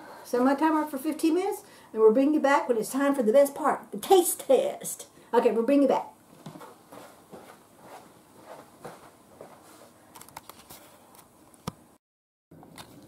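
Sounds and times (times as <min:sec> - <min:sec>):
faint footsteps: 0:06.3 - 0:11.0.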